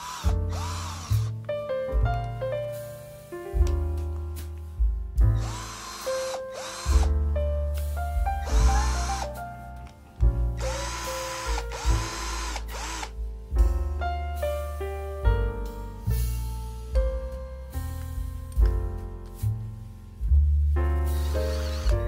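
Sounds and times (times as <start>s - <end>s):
drill motor whining: 0.0s - 1.4s, 5.4s - 7.1s, 8.4s - 9.4s, 10.6s - 13.1s, 21.2s - 22.0s
piano music: 0.0s - 22.0s.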